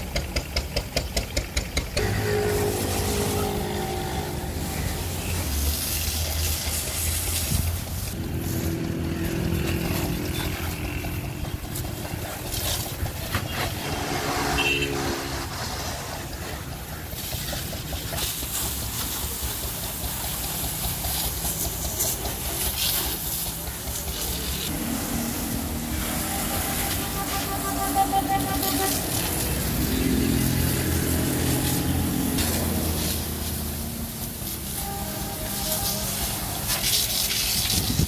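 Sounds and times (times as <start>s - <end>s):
water jet spraying: 1.4s - 38.0s
low motor drone: 2.0s - 5.7s, 24.5s - 32.9s.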